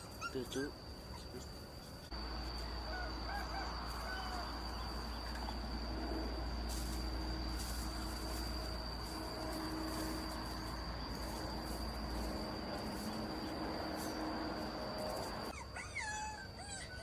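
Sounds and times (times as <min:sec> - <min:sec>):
puppy whimpering: 0:00.0 - 0:01.4, 0:15.5 - 0:17.0
high-pitched insect drone: 0:00.0 - 0:17.0.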